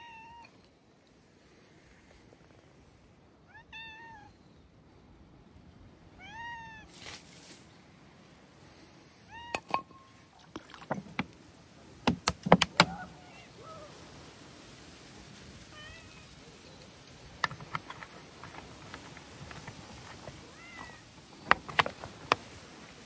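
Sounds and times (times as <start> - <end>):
sharp clicks and knocks: 12.0 - 13.0, 17.4 - 20.4, 21.4 - 22.4
cats meowing: 20.4 - 21.1.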